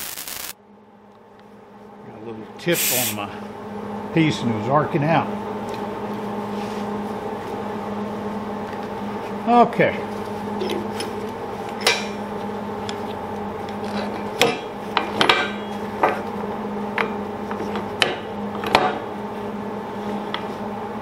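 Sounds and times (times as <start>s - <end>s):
welding machine humming: 0.0s - 0.6s, 2.7s - 3.3s.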